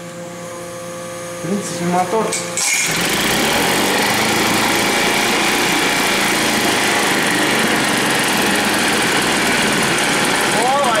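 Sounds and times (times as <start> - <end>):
outboard motor running: 2.6 - 11.0.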